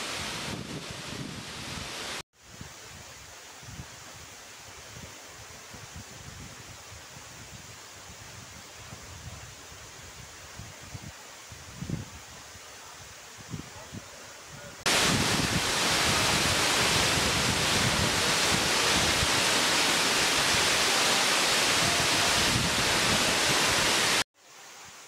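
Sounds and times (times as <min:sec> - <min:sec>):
waterfall roar: 0:14.0 - 0:24.2.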